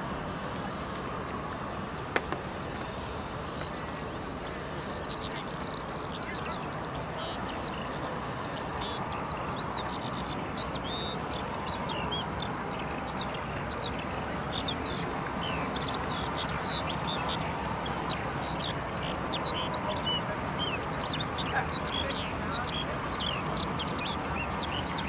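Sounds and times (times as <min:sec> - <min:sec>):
jet engines idling: 0:00.0 - 0:25.0
small birds chirping: 0:00.4 - 0:25.0.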